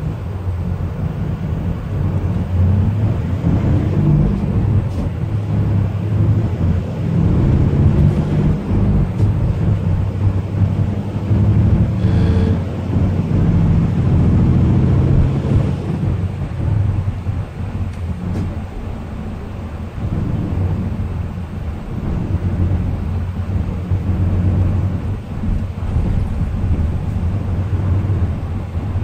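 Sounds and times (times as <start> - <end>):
diesel engine droning: 0.0 - 29.0
short high tone: 12.0 - 12.7.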